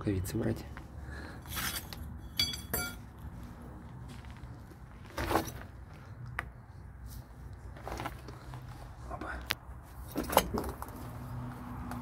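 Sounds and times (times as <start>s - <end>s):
metallic clink: 1.5s - 3.0s.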